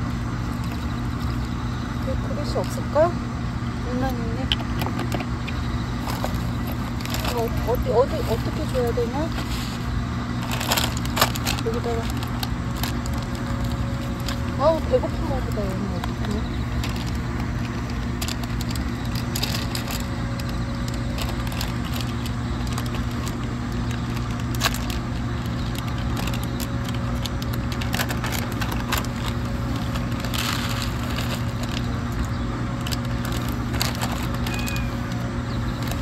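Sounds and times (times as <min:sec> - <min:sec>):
steady low hum: 0:00.0 - 0:36.0
plastic packaging crinkling: 0:00.3 - 0:02.8, 0:05.0 - 0:36.0.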